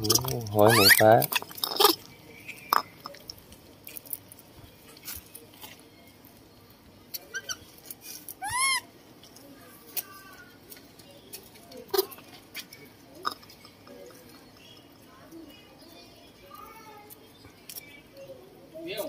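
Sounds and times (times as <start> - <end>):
monkey coo calls: 0.0 - 1.0, 8.4 - 8.9.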